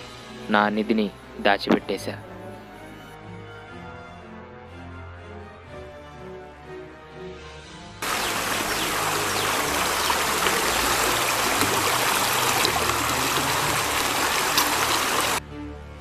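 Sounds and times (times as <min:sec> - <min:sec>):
stream water rushing: 0:08.0 - 0:15.4.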